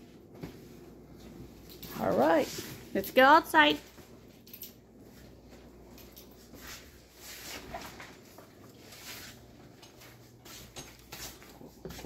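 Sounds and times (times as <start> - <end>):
low background hum: 0.0 - 12.0
shuffling and rustling: 0.0 - 12.0.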